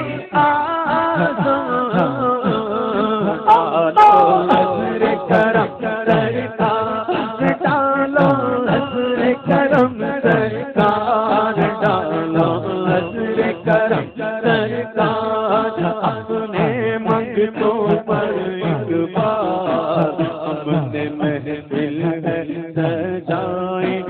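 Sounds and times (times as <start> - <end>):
man singing into microphone: 0.0 - 24.0
percussive beat: 3.5 - 4.9.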